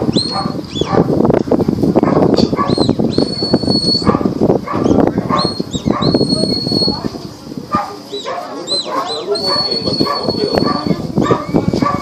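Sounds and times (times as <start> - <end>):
handler whistling: 0.1 - 0.9, 2.7 - 4.1, 4.8 - 7.0, 8.2 - 11.0.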